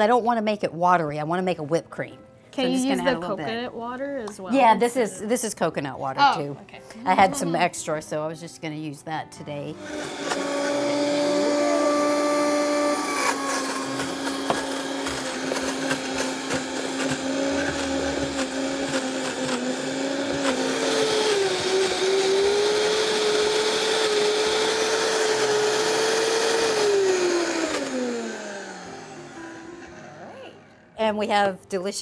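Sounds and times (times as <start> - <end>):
blender running at high speed: 9.8 - 30.3.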